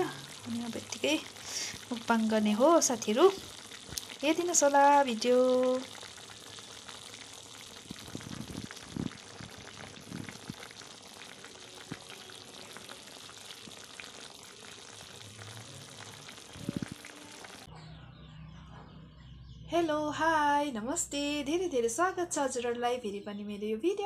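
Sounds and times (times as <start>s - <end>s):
curry simmering and sizzling: 0.0s - 17.7s.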